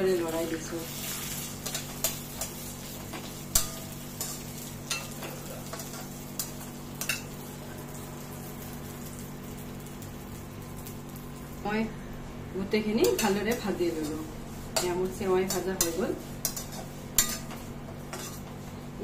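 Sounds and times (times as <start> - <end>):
faint sizzle: 0.0 - 19.0
spoon scraping a pan: 14.8 - 18.6.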